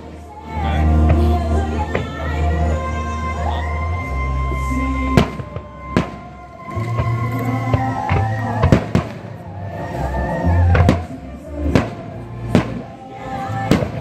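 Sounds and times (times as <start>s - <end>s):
music playing: 0.0s - 14.0s
fireworks bursting: 4.8s - 14.0s.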